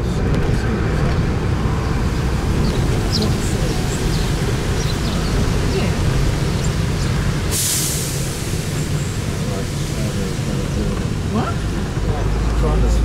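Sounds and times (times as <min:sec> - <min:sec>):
bus engine and road noise: 0:00.0 - 0:13.0
wind rumbling on microphone: 0:00.0 - 0:13.0
burst of hiss: 0:07.5 - 0:10.5.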